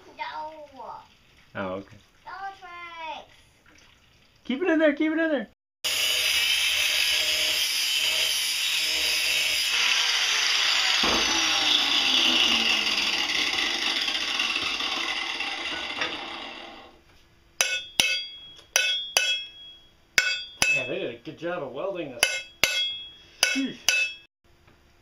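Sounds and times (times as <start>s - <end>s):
angle grinder grinding metal: 5.9s - 17.0s.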